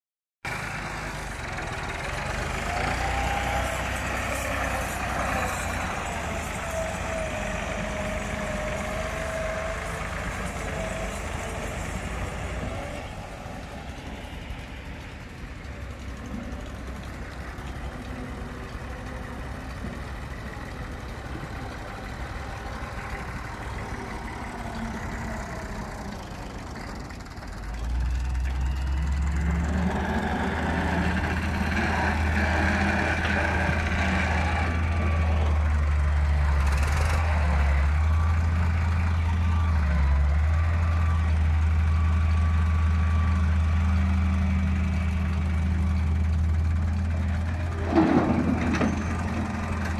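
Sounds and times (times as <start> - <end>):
tractor diesel engines under load: 0.4 - 49.9.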